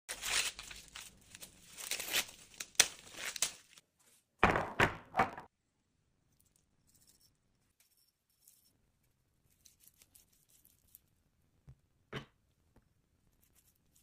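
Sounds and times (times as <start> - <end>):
corn husks tearing: 0.1 - 3.8.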